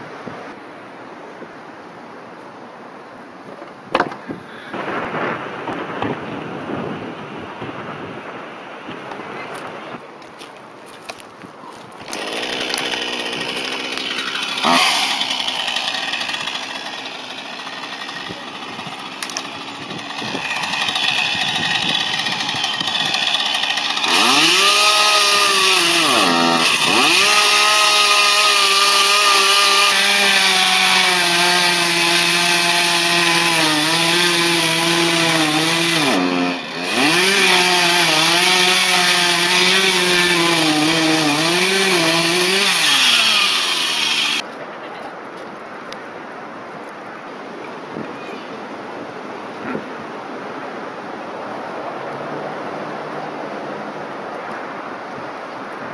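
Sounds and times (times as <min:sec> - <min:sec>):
chainsaw cutting through log: 0:12.0 - 0:44.4.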